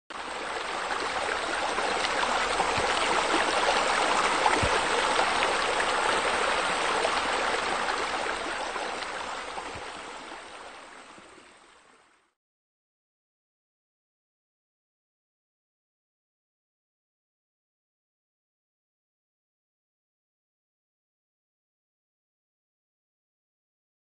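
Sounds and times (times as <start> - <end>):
splashing running water: 0.3 - 10.0.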